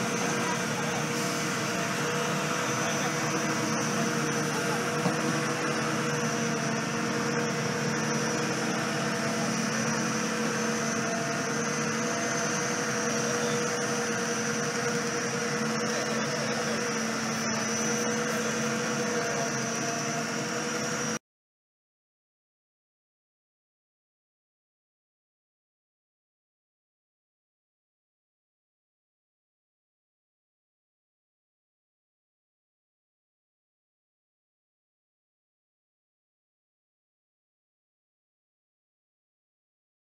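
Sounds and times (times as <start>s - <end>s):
machinery humming and whining: 0.0s - 21.2s.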